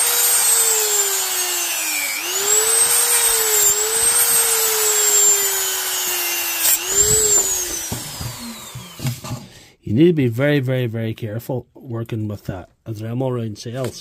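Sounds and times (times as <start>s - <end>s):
rotary tool cutting metal: 0.0s - 9.5s.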